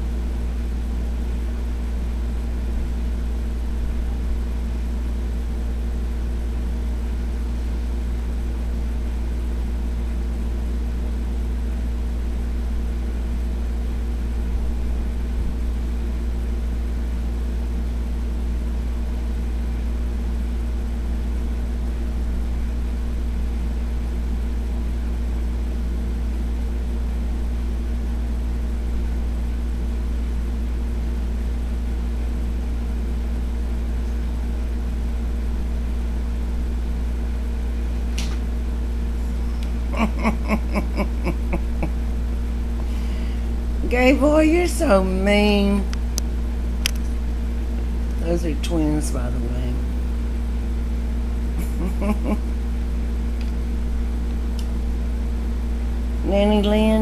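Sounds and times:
low machine hum: 0:00.0 - 0:57.0
higher drone: 0:51.5 - 0:52.6.

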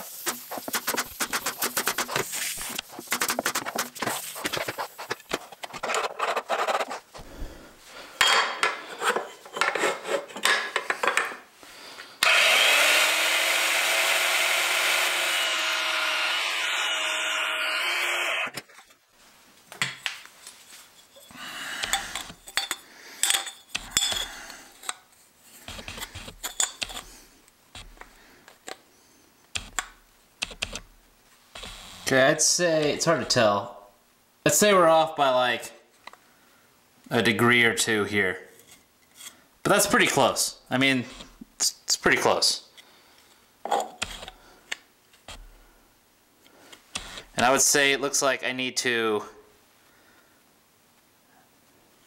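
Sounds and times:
bandsaw cutting metal tubing: 0:00.0 - 0:04.0, 0:12.2 - 0:18.6
clicks and rubbing of tools: 0:19.8 - 0:27.1.

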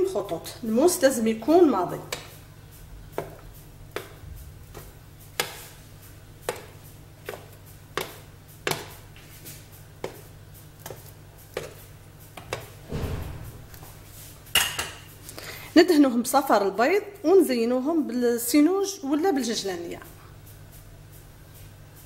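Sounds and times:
knife scoring bread dough clicks: 0:03.2 - 0:05.7, 0:06.4 - 0:09.1, 0:10.0 - 0:12.8
low hum: 0:12.8 - 0:14.5.

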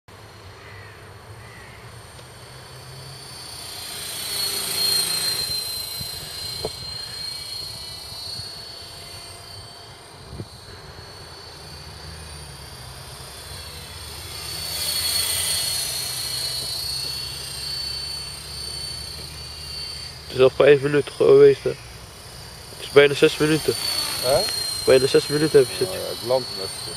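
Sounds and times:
rc helicopter whine: 0:00.1 - 0:26.9.

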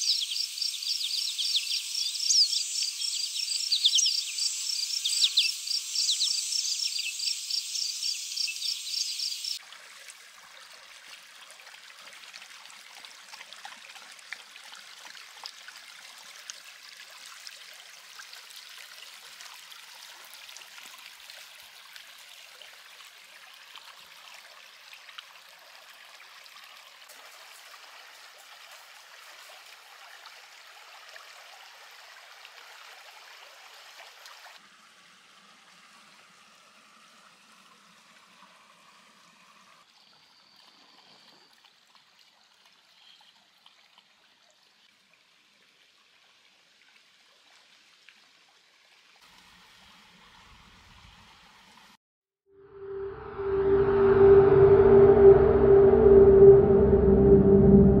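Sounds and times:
insects chirping: 0:00.0 - 0:09.6
creek trickling over shallows: 0:00.0 - 0:52.0.

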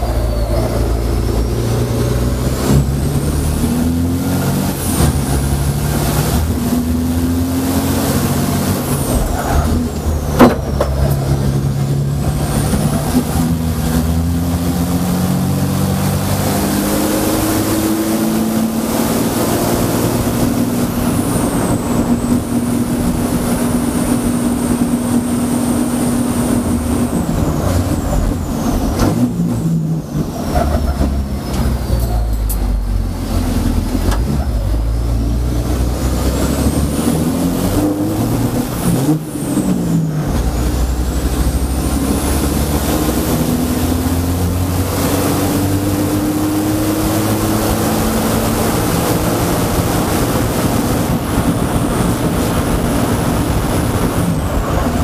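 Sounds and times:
high whistle: 0:00.0 - 0:01.6
truck diesel engine accelerating: 0:00.0 - 0:55.0.

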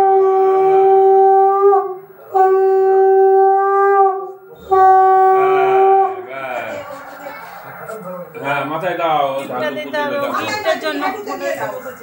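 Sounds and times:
conch shell blasts: 0:00.0 - 0:06.3.

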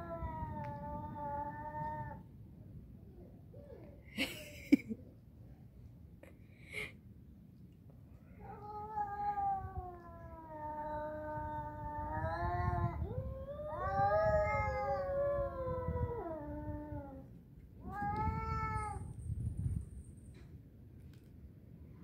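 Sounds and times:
cats yowling: 0:08.4 - 0:19.2.

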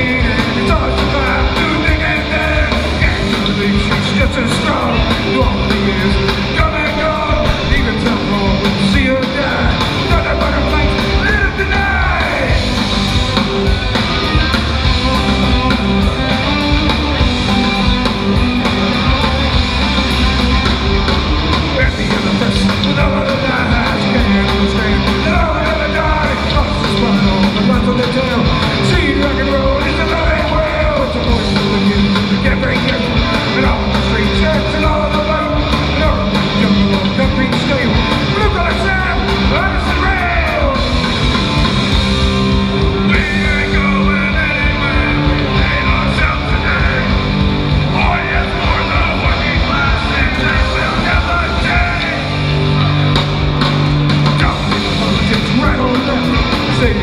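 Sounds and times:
punk band playing live: 0:00.0 - 0:57.0
shouted vocals: 0:04.2 - 0:12.8, 0:47.8 - 0:52.8.

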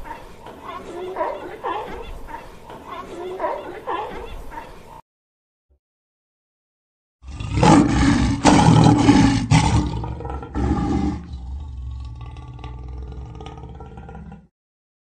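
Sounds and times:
lion roaring: 0:07.2 - 0:14.5.

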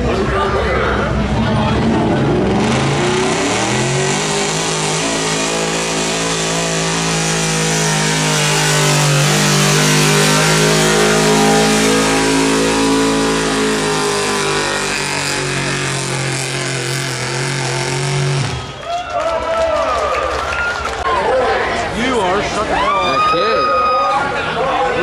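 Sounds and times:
pickup truck engine revving: 0:01.0 - 0:18.8.

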